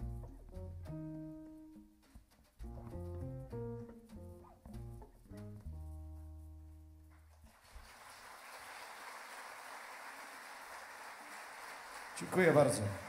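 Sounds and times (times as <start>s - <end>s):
tango on plucked strings and bass: 0.0s - 7.5s
audience applause: 7.5s - 13.0s.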